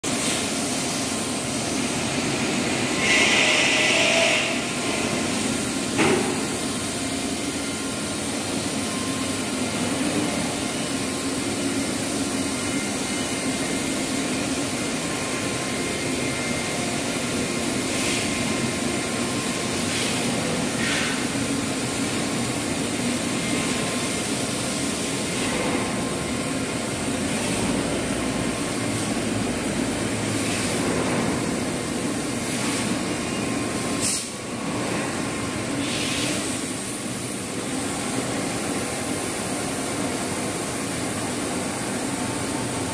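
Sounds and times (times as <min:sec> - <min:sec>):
steady machine noise: 0:00.1 - 0:32.4.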